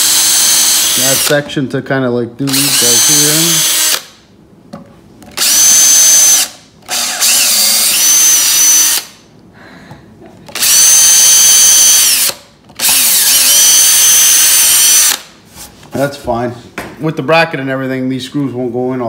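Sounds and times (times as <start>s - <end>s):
cordless drill boring into wood: 0.0s - 1.4s, 2.5s - 4.1s, 5.4s - 9.1s, 10.5s - 15.3s.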